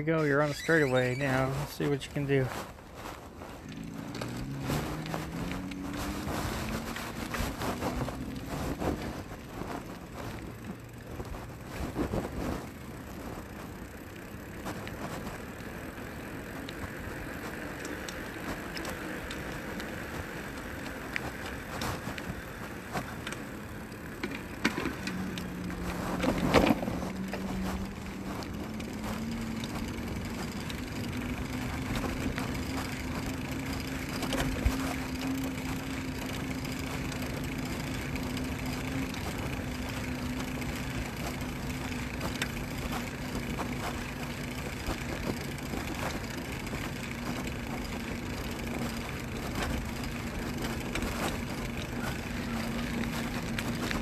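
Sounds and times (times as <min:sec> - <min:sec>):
electric bike motor whining: 0:00.0 - 0:02.1, 0:02.8 - 0:54.0
wind and tyre noise: 0:00.0 - 0:54.0.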